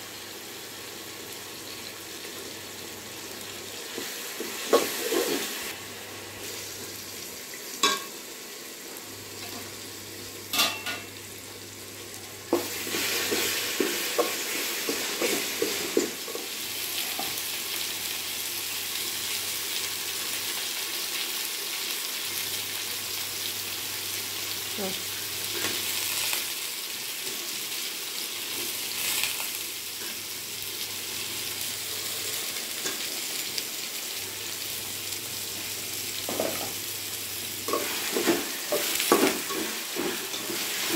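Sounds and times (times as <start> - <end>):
vegetables sizzling in a pot: 0.0 - 40.9.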